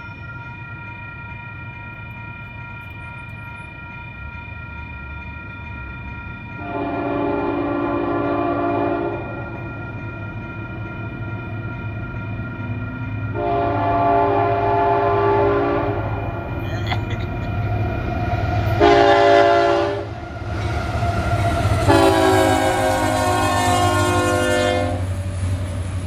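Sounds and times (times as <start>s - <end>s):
crossing bell ringing: 0.0s - 25.8s
locomotive air horn blasts: 6.6s - 9.3s, 13.4s - 16.1s, 18.8s - 20.2s, 21.8s - 25.1s.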